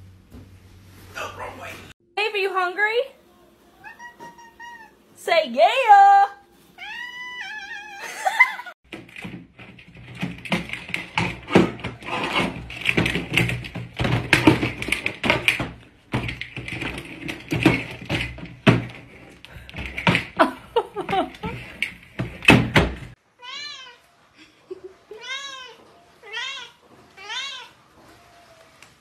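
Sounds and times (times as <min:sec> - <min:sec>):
kitten meowing: 0:03.8 - 0:05.0, 0:06.8 - 0:08.1.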